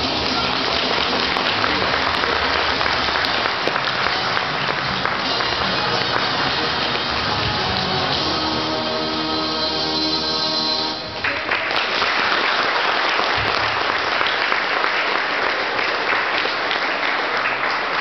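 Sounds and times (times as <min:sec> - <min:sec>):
audience applause: 0:00.0 - 0:09.5, 0:11.0 - 0:18.0
program music: 0:03.8 - 0:11.2.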